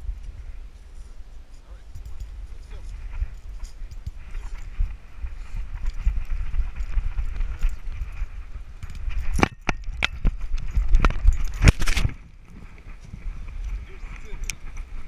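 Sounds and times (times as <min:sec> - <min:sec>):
camera handling rumble: 0:05.6 - 0:15.0
sharp knocks and rattles: 0:05.7 - 0:12.2.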